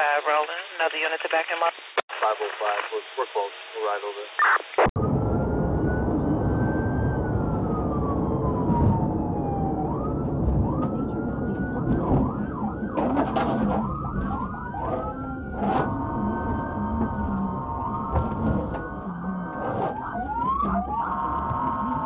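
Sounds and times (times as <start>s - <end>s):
engine and road rumble: 5.0s - 22.0s
police siren wailing and yelping: 5.0s - 22.0s.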